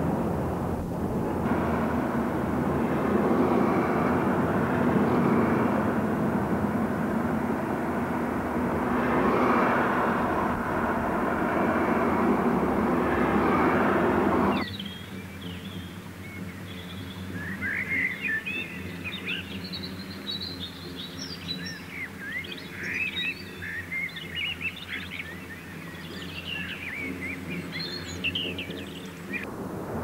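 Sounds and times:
steady low hum: 0.0 - 30.0
small birds chirping: 14.5 - 29.5.

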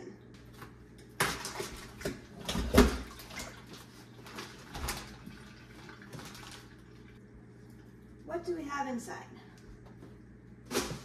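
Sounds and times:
wet rustles and knocks in sink: 0.6 - 6.8.

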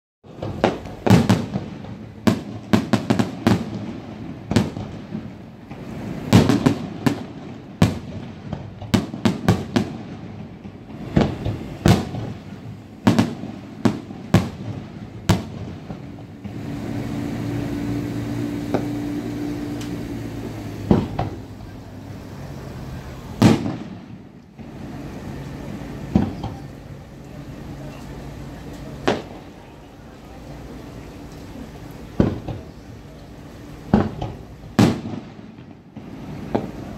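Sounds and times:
fireworks bangs and crackles: 0.2 - 36.9
steady low hum: 10.5 - 36.9.

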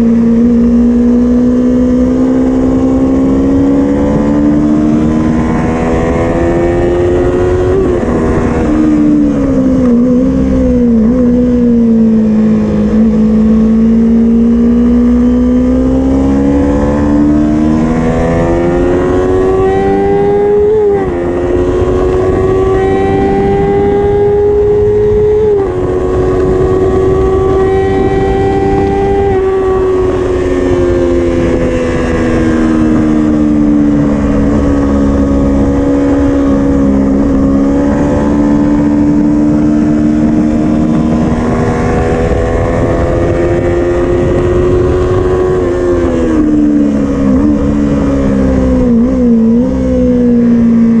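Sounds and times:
motorcycle engine: 0.0 - 51.0
wind rushing: 1.4 - 14.1, 16.0 - 50.2.

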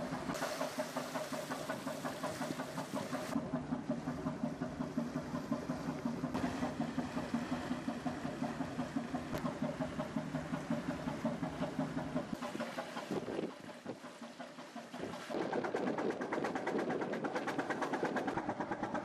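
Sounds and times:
marine engine running: 0.0 - 19.0.

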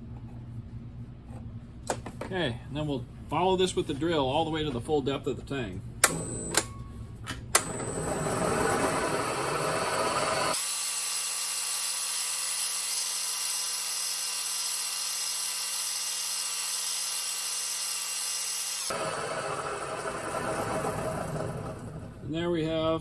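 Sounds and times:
even hum of steady tones: 0.0 - 10.6
milling machine drilling: 7.6 - 22.2.

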